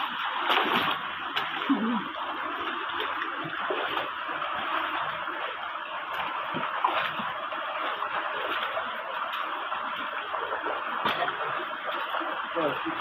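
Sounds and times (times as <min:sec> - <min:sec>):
splashes from wading: 0:00.0 - 0:13.0
stream running over stones: 0:00.0 - 0:13.0.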